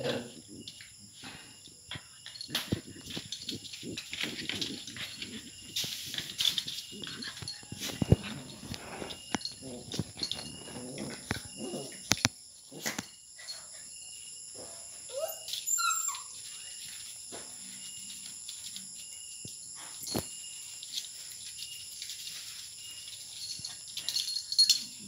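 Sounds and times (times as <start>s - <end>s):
insects chirping: 0.0s - 25.0s
dogs scuffling on a mat: 0.1s - 12.2s, 14.5s - 25.0s
dog whining: 6.8s - 12.2s, 15.1s - 16.4s.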